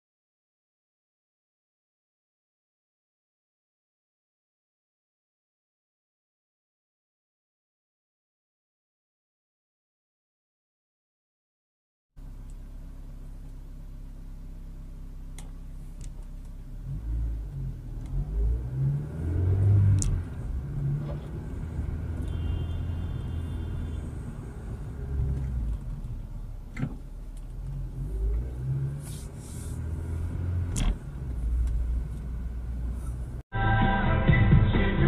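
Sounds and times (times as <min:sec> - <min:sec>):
engine and road rumble: 0:12.2 - 0:35.0.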